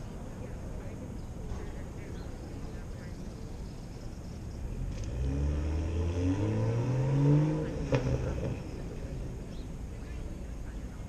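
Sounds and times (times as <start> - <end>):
vehicle engine accelerating: 4.6 - 10.2.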